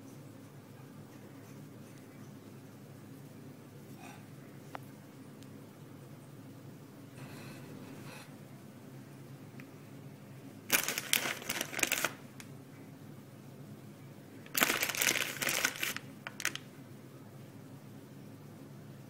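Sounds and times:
low steady hum: 0.0s - 19.0s
candies crinkling and clicking: 10.7s - 12.5s, 14.4s - 16.7s.

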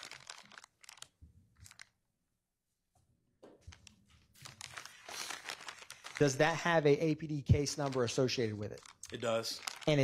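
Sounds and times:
plastic package rustling: 0.0s - 2.0s, 3.6s - 10.0s.

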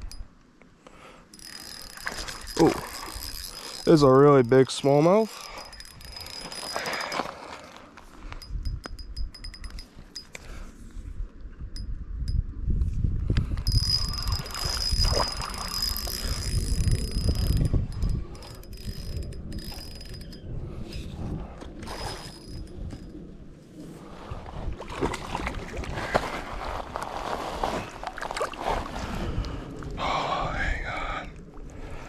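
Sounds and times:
fishing reel drag clicking: 1.3s - 4.2s, 5.1s - 7.4s, 8.3s - 10.4s, 13.4s - 23.1s
reel drag buzzing: 1.3s - 10.4s, 13.6s - 23.1s.

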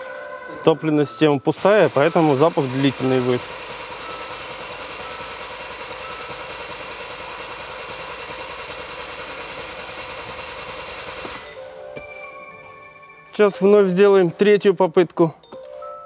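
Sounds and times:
diesel engine cranking: 0.6s - 11.9s.

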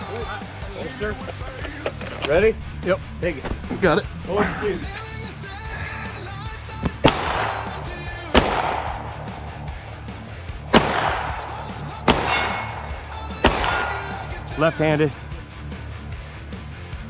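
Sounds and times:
pistol shots with echo: 6.7s - 15.2s.

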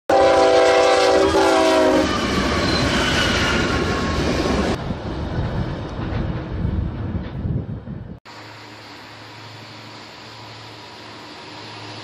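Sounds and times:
multi-note train horn: 0.1s - 2.3s
train rumble and rail noise: 0.1s - 12.0s.

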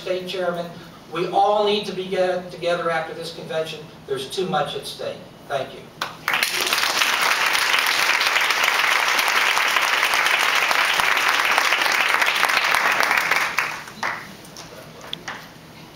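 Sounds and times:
crowd applauding: 6.2s - 15.5s.

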